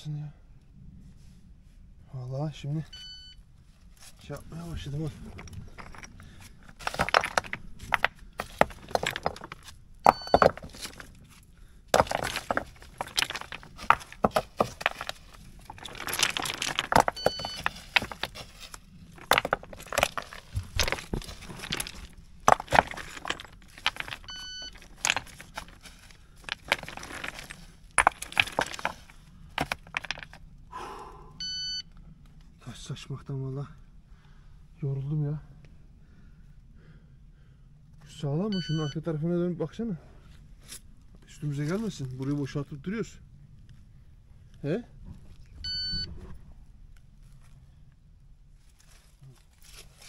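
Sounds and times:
short electronic beep: 0:03.0 - 0:03.4, 0:31.4 - 0:31.8, 0:38.6 - 0:39.0, 0:45.7 - 0:46.1
stones clattering: 0:04.0 - 0:30.5, 0:40.7 - 0:42.6.

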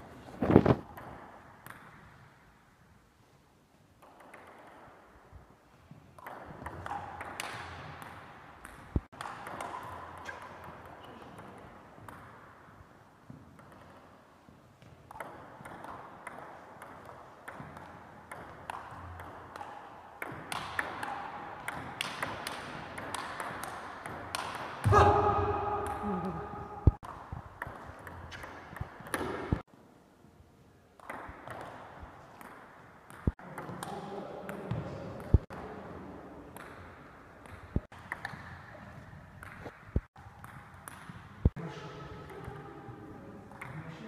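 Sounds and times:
sharp knock: 0:24.8 - 0:27.0.

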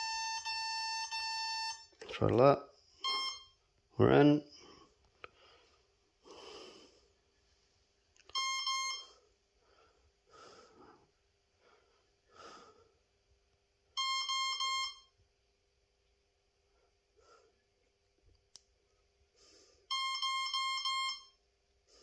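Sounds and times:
soft breaths: 0:04.5 - 0:08.0, 0:09.0 - 0:13.2, 0:16.6 - 0:18.0, 0:18.8 - 0:20.0, 0:21.8 - 0:22.0.

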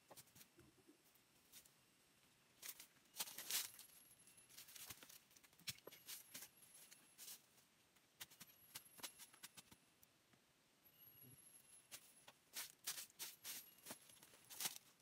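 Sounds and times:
steps in dry leaf litter: 0:02.6 - 0:05.2, 0:11.9 - 0:15.0
sacked load rustling and crackling: 0:02.6 - 0:07.6, 0:11.9 - 0:15.0.

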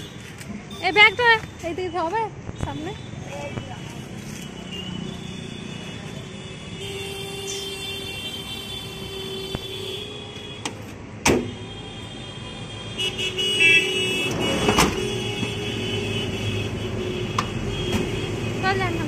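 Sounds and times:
road vehicles running: 0:00.0 - 0:19.0.

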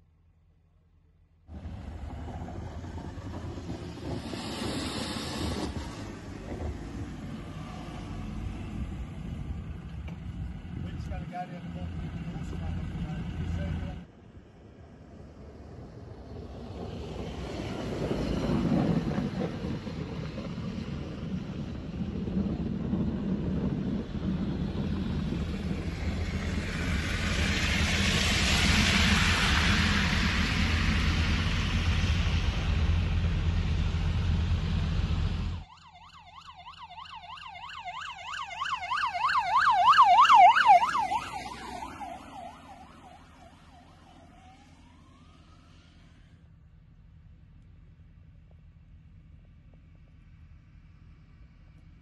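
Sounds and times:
vehicle rumble and hiss: 0:01.5 - 0:35.7, 0:38.3 - 0:52.0
emergency vehicle yelp siren: 0:35.5 - 0:46.3.

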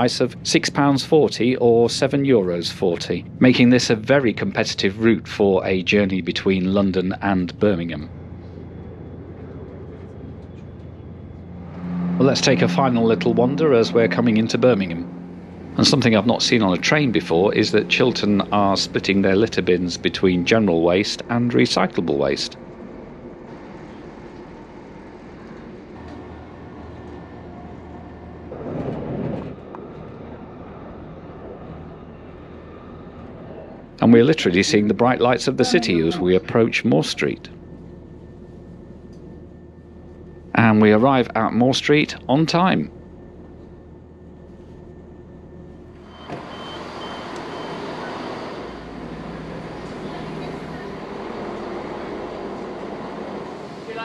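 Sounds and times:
platform ambience: 0:00.0 - 0:22.6, 0:33.8 - 0:44.3
loud low rumble: 0:00.0 - 0:44.4
diesel engines: 0:00.0 - 0:54.0
low train interior hum: 0:00.0 - 0:54.0
wheels rumbling on rail: 0:00.0 - 0:54.0
short high door warning beeps: 0:46.0 - 0:48.8
train door opening: 0:46.0 - 0:53.9.

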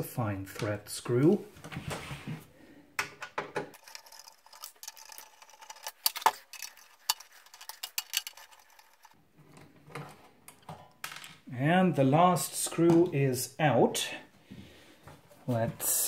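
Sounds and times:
screwdriver clicking on metal screws: 0:03.8 - 0:09.2.

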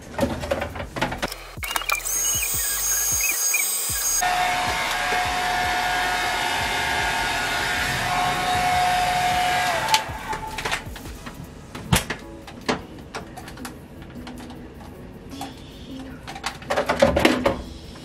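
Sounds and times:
motor winding down: 0:01.2 - 0:11.0
hair dryer blowing: 0:02.1 - 0:11.2.

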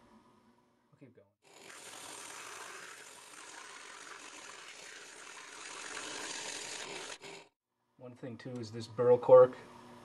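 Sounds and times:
sandpaper rasping on spinning cork: 0:01.5 - 0:07.5.

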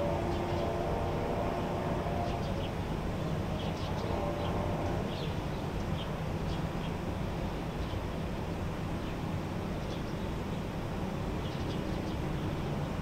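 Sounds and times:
distant road traffic: 0:00.0 - 0:13.0
small birds chirping: 0:02.2 - 0:07.1, 0:07.7 - 0:08.2, 0:09.0 - 0:13.0.

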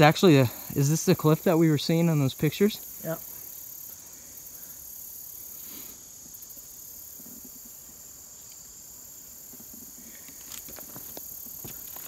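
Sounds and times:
insects buzzing: 0:00.0 - 0:12.0
footsteps on gravel: 0:09.5 - 0:12.0.

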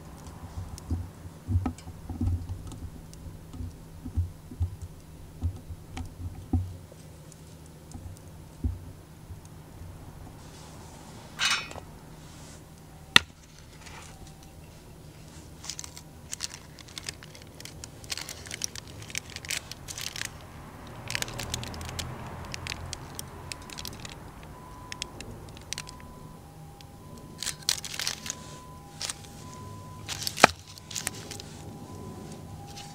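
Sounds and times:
paper crinkling and rustling: 0:13.2 - 0:24.2, 0:24.8 - 0:26.2, 0:27.3 - 0:32.9.

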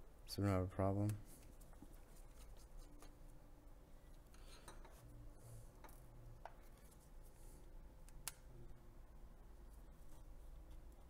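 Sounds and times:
gloved hands rubbing: 0:01.2 - 0:03.2.

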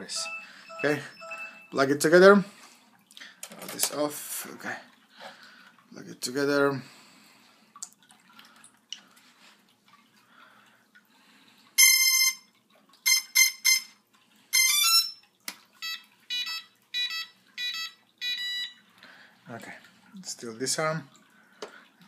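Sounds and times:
electronic beeps: 0:00.0 - 0:01.9
rising three-note tune: 0:00.0 - 0:02.0.

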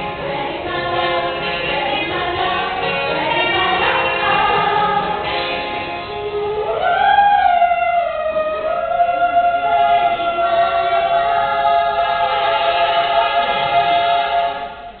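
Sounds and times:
girls singing unaccompanied: 0:00.0 - 0:05.6, 0:06.2 - 0:15.0.

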